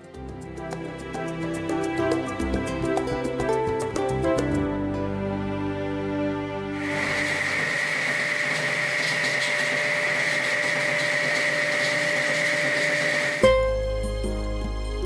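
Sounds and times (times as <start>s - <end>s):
machine whining and hissing: 6.8s - 13.4s.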